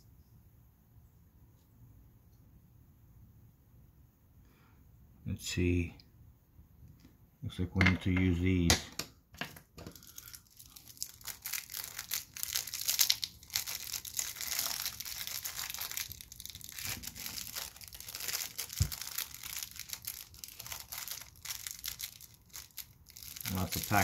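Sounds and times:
plastic bag crinkling and tearing: 0:09.8 - 0:24.0.

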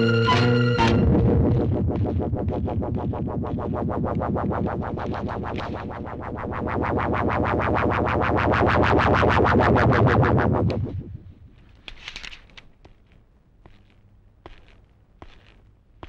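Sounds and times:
pulsing film score music: 0:00.0 - 0:11.3.

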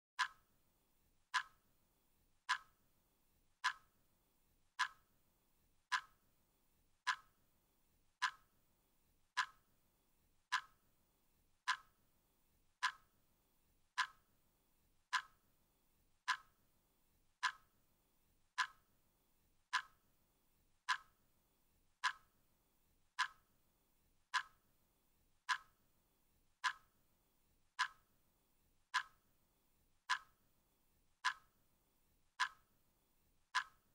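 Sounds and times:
clock ticking: 0:00.2 - 0:00.5, 0:01.3 - 0:01.6, 0:02.5 - 0:02.7, 0:03.6 - 0:03.9, 0:04.8 - 0:05.1, 0:05.9 - 0:06.2, 0:07.0 - 0:07.4, 0:08.2 - 0:08.5, 0:09.4 - 0:09.6, 0:10.5 - 0:10.8, 0:11.6 - 0:11.9, 0:12.8 - 0:13.1, 0:15.1 - 0:15.4, 0:16.2 - 0:16.5, 0:17.4 - 0:17.6, 0:19.7 - 0:20.0, 0:20.8 - 0:21.1, 0:22.0 - 0:22.3, 0:23.2 - 0:23.4, 0:24.3 - 0:24.6, 0:25.4 - 0:25.8, 0:26.6 - 0:26.9, 0:27.8 - 0:28.1, 0:31.2 - 0:31.6, 0:32.4 - 0:32.7, 0:33.5 - 0:33.9.

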